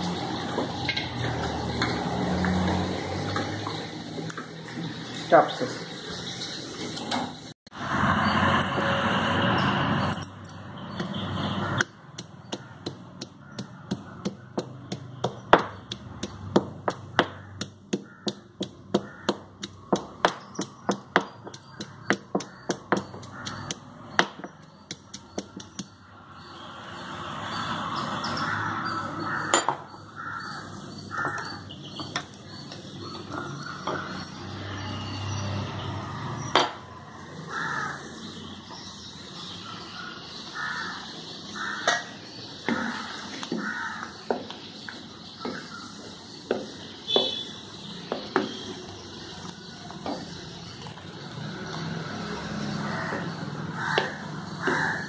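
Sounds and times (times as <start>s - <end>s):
pestle pounding in stone mortar: 10.9s - 26.0s.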